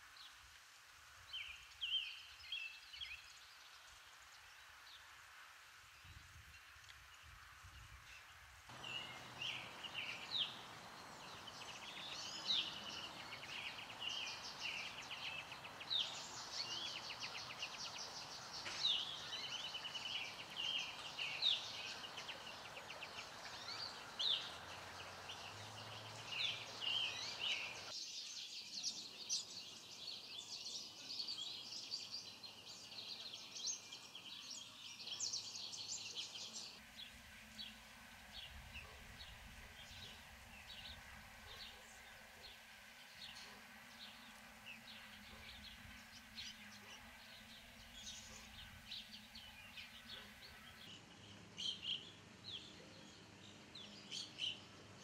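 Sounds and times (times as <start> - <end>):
outdoor background hiss: 0.0 - 55.0
songbirds chirping and trilling: 0.0 - 55.0.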